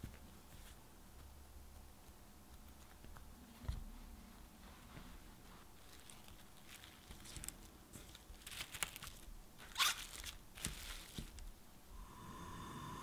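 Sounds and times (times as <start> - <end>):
plastic cling wrap crinkling: 5.6 - 11.6.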